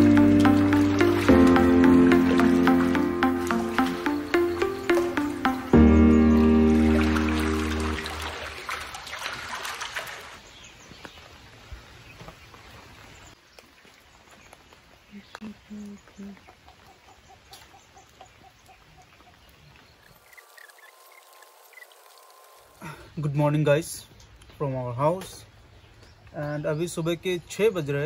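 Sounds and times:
background music: 0:00.0 - 0:08.6
rain: 0:00.0 - 0:23.3.

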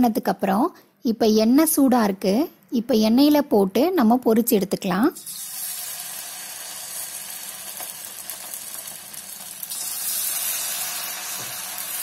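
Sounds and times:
food sizzling in hot oil: 0:05.2 - 0:12.0.

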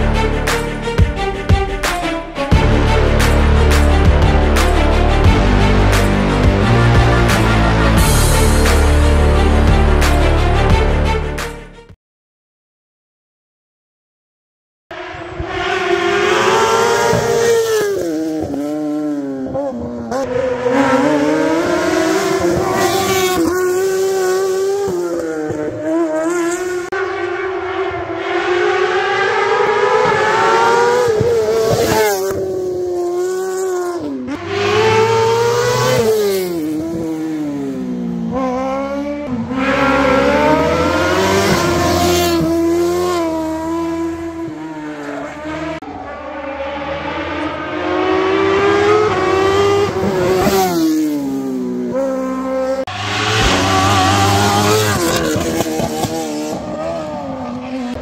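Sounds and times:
racing car engines revving: 0:14.9 - 0:58.0.

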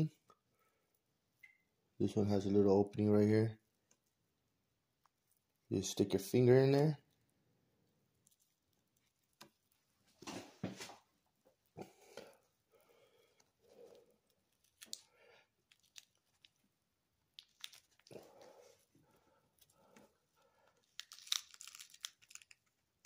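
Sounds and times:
crackling of dry seed husk: 0:14.2 - 0:16.7, 0:17.3 - 0:18.5, 0:20.8 - 0:23.0.

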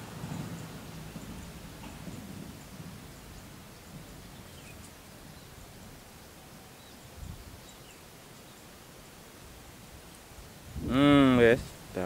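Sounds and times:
steady outdoor hiss: 0:00.0 - 0:12.0
faint bird chirps: 0:04.1 - 0:05.6.

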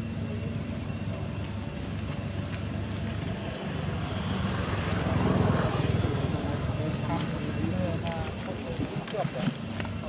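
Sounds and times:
low mechanical rumble: 0:00.0 - 0:10.0.

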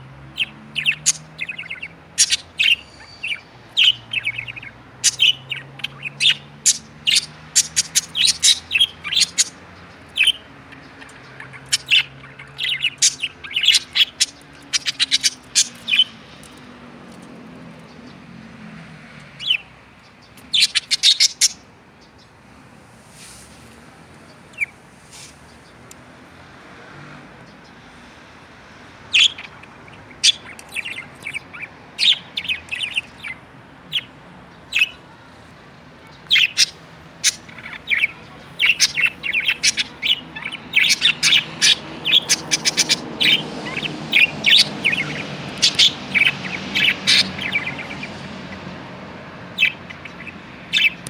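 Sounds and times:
budgerigars chirping: 0:00.3 - 0:16.6, 0:19.3 - 0:22.2, 0:24.3 - 0:24.8, 0:28.8 - 0:35.0, 0:36.0 - 0:48.8, 0:49.5 - 0:51.0.

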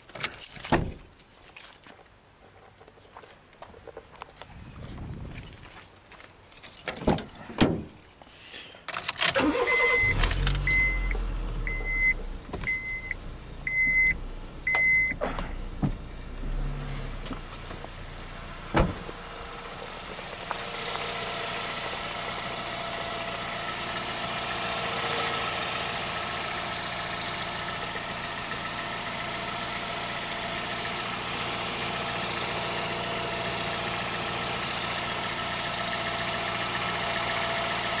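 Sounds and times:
car warning chime beeping: 0:09.4 - 0:15.2
car engine running: 0:09.4 - 0:38.0
clunks: 0:18.7 - 0:19.2.

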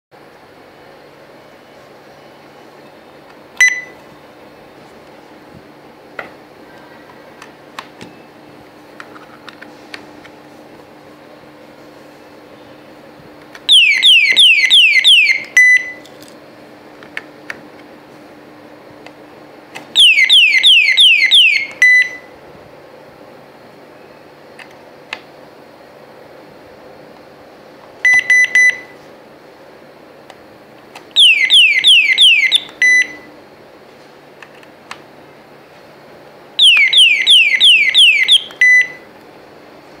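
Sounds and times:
alarm siren whoops: 0:13.7 - 0:15.5, 0:20.0 - 0:22.2, 0:31.2 - 0:32.8, 0:36.6 - 0:38.6.

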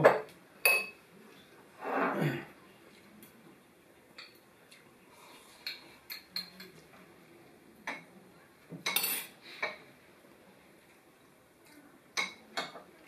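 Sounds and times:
spoons clinking on ceramic bowls: 0:00.1 - 0:01.0, 0:05.6 - 0:06.8, 0:08.8 - 0:09.3.

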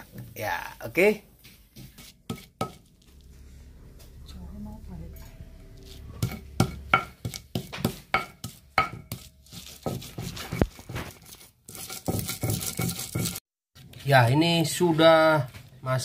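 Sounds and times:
stone pestle knocking on stone: 0:02.3 - 0:02.8, 0:06.2 - 0:10.9
stone rubbing and scraping: 0:05.8 - 0:13.4.

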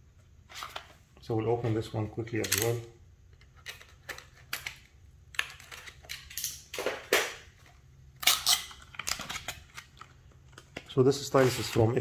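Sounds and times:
small box clicks and snaps: 0:02.4 - 0:07.4.

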